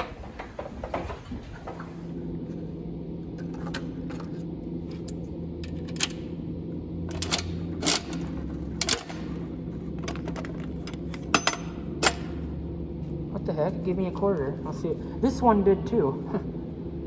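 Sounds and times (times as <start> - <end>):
steady low hum: 0.0 - 17.0
coin mechanism clicks and clanks: 7.1 - 8.2, 8.8 - 9.3, 10.0 - 12.3.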